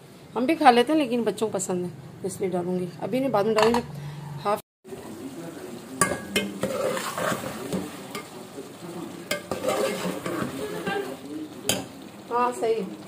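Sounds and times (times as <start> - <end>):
sauce sizzling in a pot: 4.9 - 13.0
metal spoon clinking on a pot: 6.0 - 7.4, 9.3 - 11.1.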